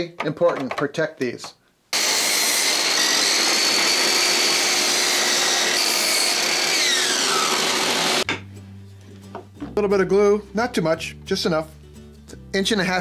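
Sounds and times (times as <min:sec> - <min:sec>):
miter saw cutting wood: 0:02.0 - 0:08.2.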